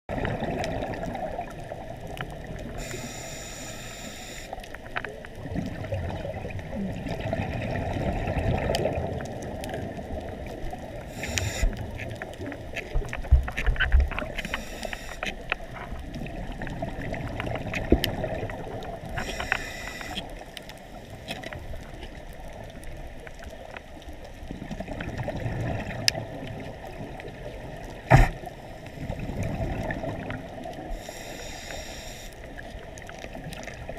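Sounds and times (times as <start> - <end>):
muffled underwater rumble: 0.1 - 33.9
regulator hissing inhalation: 2.8 - 4.6, 11.1 - 11.8, 14.4 - 15.2, 19.2 - 20.3, 31.0 - 32.4.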